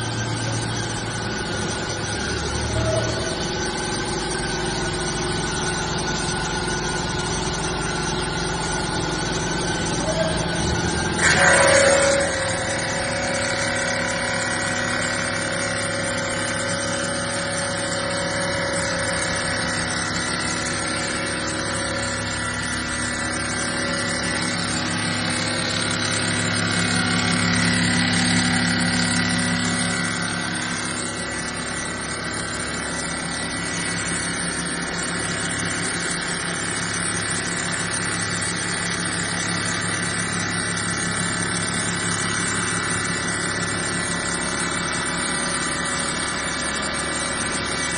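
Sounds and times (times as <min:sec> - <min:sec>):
spindle motor running: 0:00.0 - 0:47.9
saw blade cutting granite: 0:09.8 - 0:36.4.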